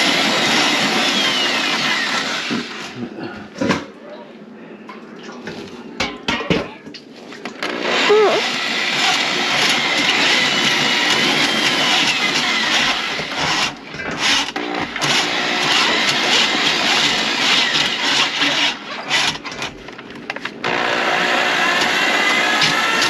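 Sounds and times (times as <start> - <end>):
electric drain snake whining: 0.0 - 3.0, 7.6 - 19.8, 20.6 - 23.0.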